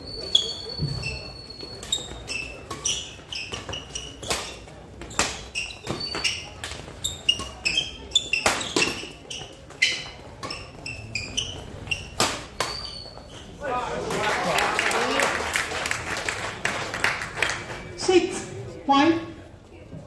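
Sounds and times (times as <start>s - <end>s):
shoes squeaking on court floor: 0.0s - 13.7s
rackets hitting shuttlecock: 1.8s - 10.8s, 12.0s - 13.0s.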